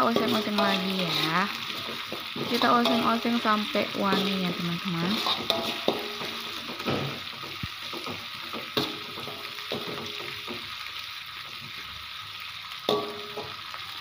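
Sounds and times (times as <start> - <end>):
spatula clacking against wok: 0.0 - 3.4, 5.1 - 10.7, 12.9 - 13.6
metal spatula scraping wok: 0.0 - 10.4
paste sizzling in hot oil: 0.0 - 14.0.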